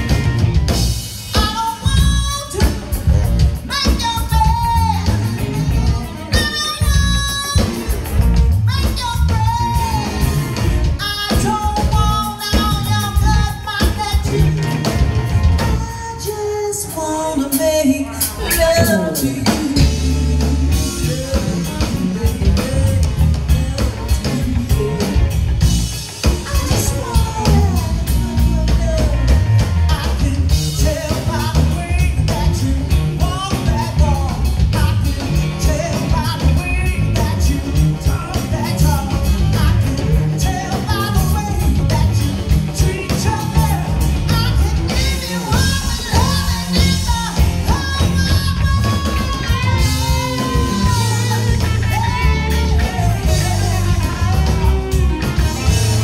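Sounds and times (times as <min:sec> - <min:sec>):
electric blues band: 0:00.0 - 0:56.0
woman singing: 0:01.3 - 0:08.0, 0:08.7 - 0:25.4, 0:26.3 - 0:56.0.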